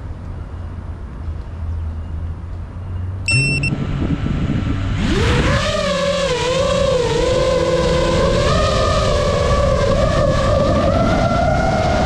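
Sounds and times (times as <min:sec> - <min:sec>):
short high beep: 0:03.3 - 0:03.8.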